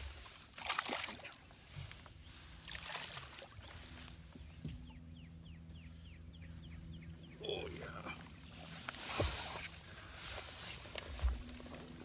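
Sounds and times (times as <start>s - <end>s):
water splashing: 0.5s - 1.5s, 2.6s - 3.8s.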